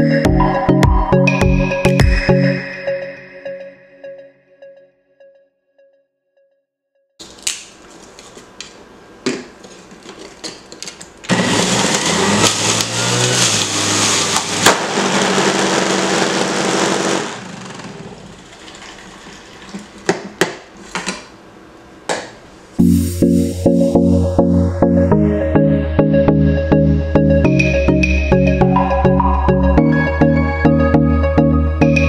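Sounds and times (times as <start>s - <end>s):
juicer motor running: 11.2s - 20.1s
sharp pop of motor blowing: 14.4s - 15.1s.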